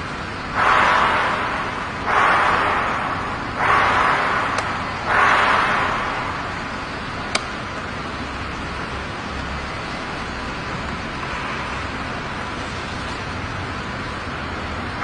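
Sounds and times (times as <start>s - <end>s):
sharp click: 3.6s - 6.0s.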